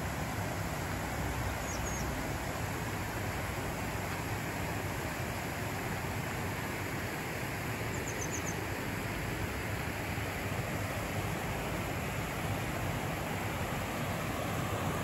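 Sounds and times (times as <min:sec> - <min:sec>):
river water rushing over stones: 0:00.0 - 0:15.0
faint high chirps: 0:07.9 - 0:08.6.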